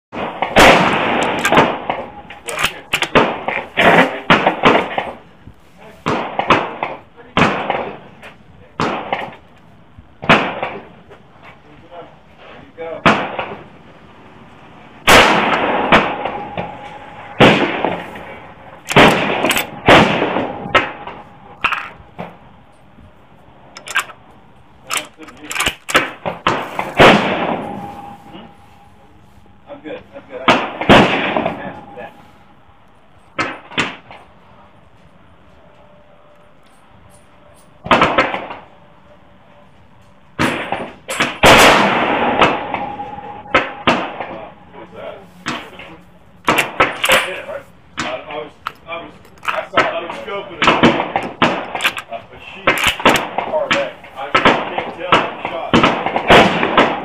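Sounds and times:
rifle shots echoing: 0.2 - 5.2, 6.1 - 8.1, 10.2 - 10.9, 13.0 - 13.6, 15.0 - 22.4, 23.8 - 28.6, 30.4 - 32.1, 40.4 - 44.6, 46.5 - 47.5, 50.6 - 57.0.

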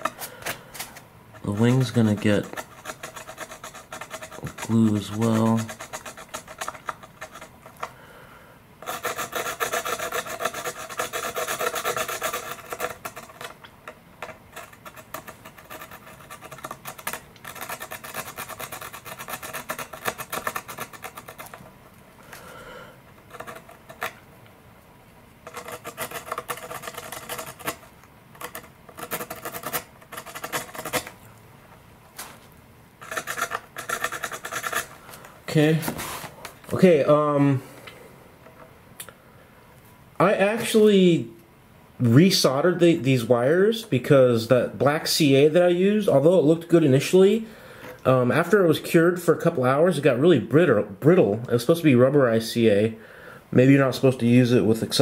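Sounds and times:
file rasping on composite: 1.3 - 7.9, 8.8 - 13.6, 14.2 - 21.6, 23.1 - 24.2, 25.4 - 31.2, 33.0 - 35.0.

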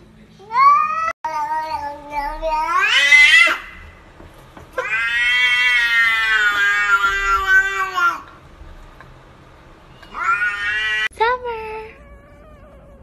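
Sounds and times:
cat meowing: 0.4 - 3.9, 4.8 - 8.3, 9.9 - 11.1, 11.9 - 13.0.

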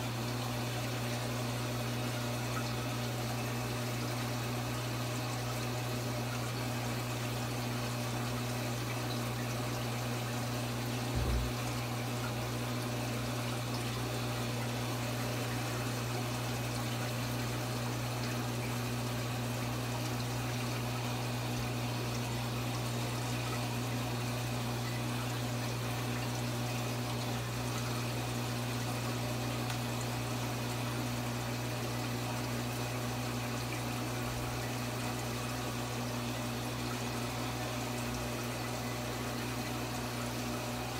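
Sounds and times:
pump humming: 0.0 - 40.9
water rushing through filter: 0.0 - 40.9
short low thump: 11.1 - 11.5.

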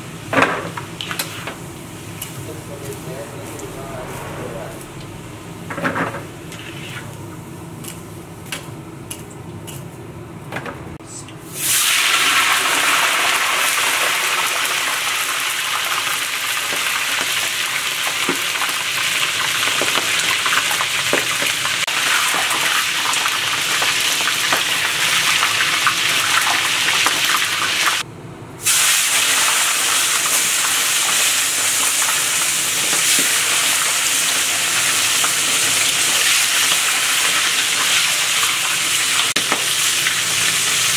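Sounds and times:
chicken frying in hot oil: 11.5 - 28.0, 28.6 - 40.9.

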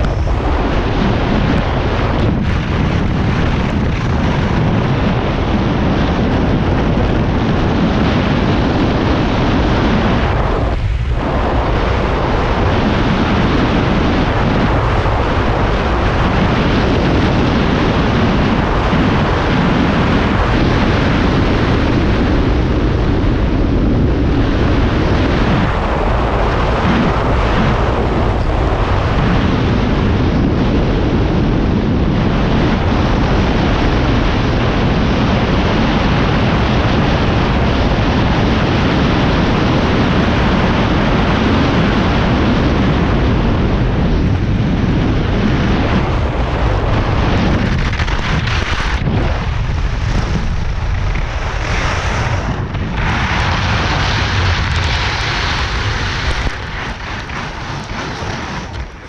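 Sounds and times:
wind buffeting microphone: 0.0 - 59.0
skis scraping over snow: 45.8 - 59.0.

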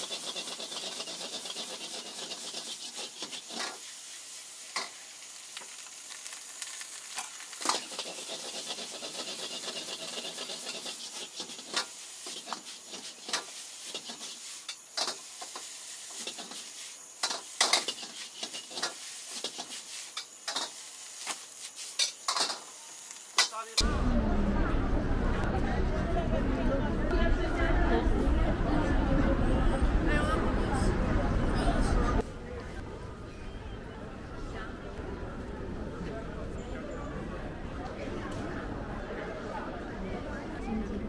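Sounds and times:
steel ladle scraping a wok: 0.0 - 5.0, 7.6 - 22.7
rice sizzling in a wok: 0.0 - 23.9.

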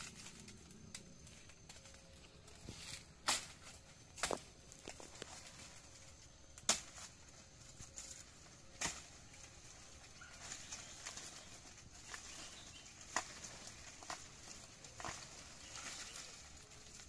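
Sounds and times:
dry leaves rustling: 0.0 - 17.0.

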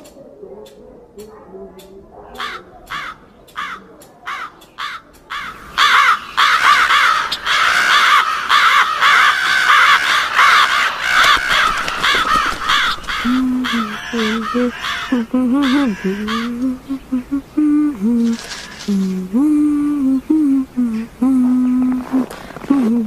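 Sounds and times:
crows cawing: 2.3 - 16.7.

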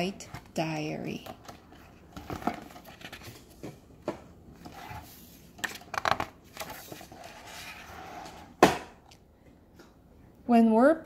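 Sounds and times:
book pages turning: 1.3 - 3.8, 4.6 - 8.0.

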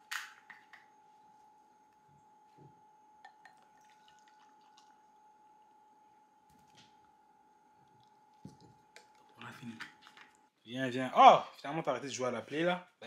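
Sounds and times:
faint steady hum: 0.0 - 13.0
juice pouring into glass: 3.2 - 5.8.

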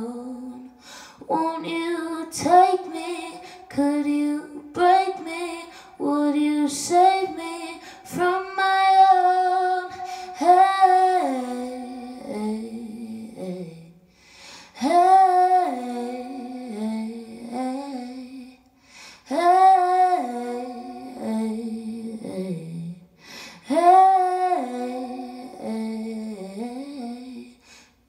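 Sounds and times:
woman singing without words: 0.0 - 27.9.

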